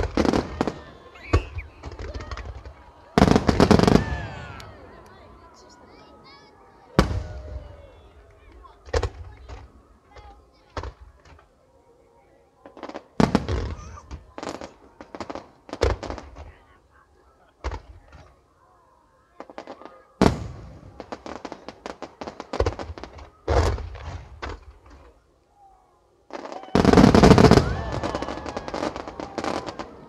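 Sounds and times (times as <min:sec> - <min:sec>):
crackling firework tails: 0:00.0 - 0:06.0, 0:12.6 - 0:16.8, 0:19.4 - 0:25.2, 0:26.2 - 0:30.0.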